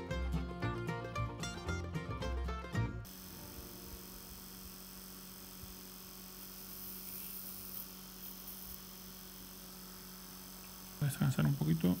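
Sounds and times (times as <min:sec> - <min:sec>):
soldering iron hiss: 0:03.1 - 0:12.0.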